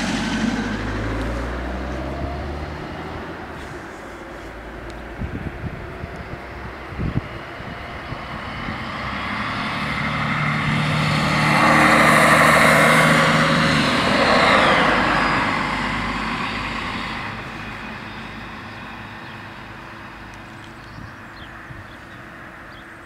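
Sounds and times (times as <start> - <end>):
diesel railcar engine drone: 0.0 - 23.0
whine dropping in pitch: 4.8 - 19.2.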